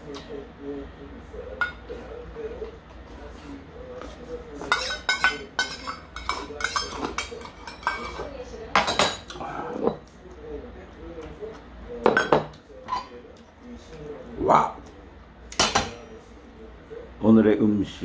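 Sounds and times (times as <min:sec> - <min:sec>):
metal spoon clinking on bowl: 0:04.7 - 0:10.0.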